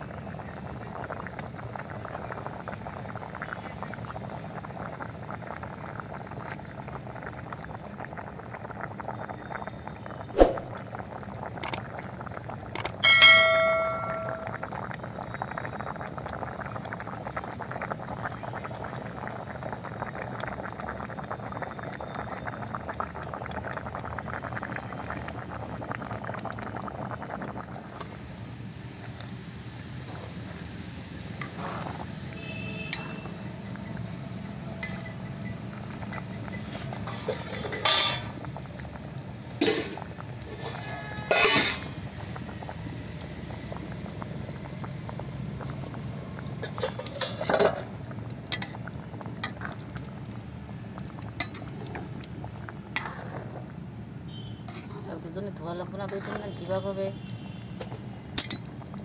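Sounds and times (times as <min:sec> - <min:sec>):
curry boiling in metal pan: 0:00.0 - 0:59.0
metal utensil ringing clang: 0:13.0 - 0:14.6, 0:41.3 - 0:41.8.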